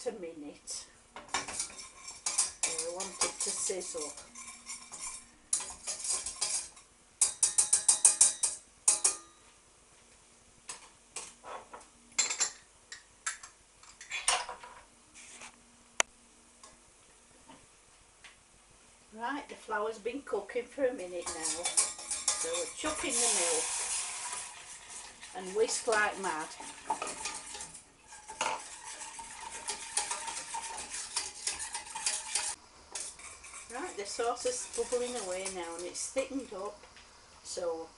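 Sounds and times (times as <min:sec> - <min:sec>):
spoon scraping saucepan: 0:01.3 - 0:09.2, 0:21.0 - 0:36.8.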